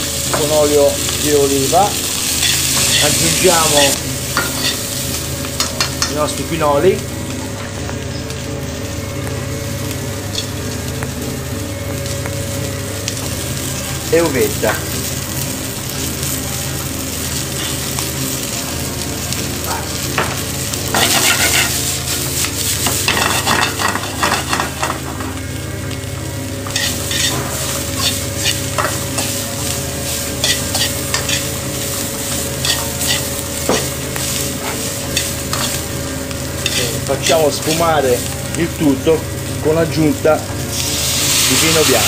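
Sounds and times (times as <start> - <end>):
vegetables sizzling in oil: 0.0 - 42.0
stirring scraping against pan: 21.0 - 21.8.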